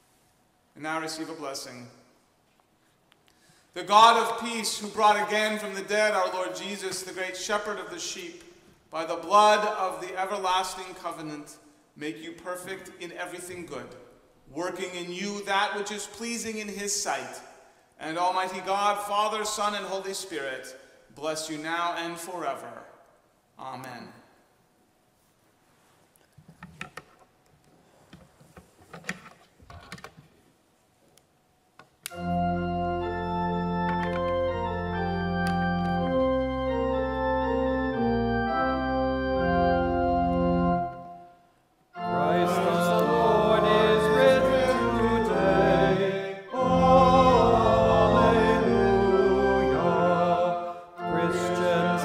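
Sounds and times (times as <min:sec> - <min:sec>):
church organ playing a hymn: 0:03.8 - 0:08.0, 0:09.1 - 0:11.1, 0:32.1 - 0:52.0.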